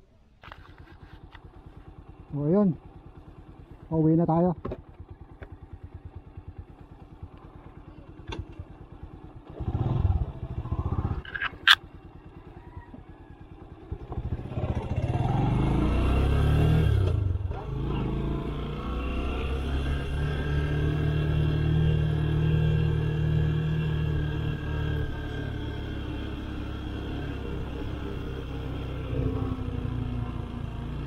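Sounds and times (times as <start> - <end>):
motorcycle engine running: 0.4 - 31.0
sharp click: 11.2 - 11.8.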